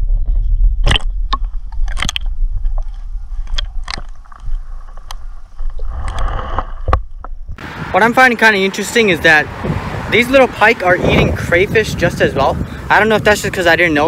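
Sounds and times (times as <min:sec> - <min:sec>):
camera housing clicks and knocks: 0:00.8 - 0:05.2.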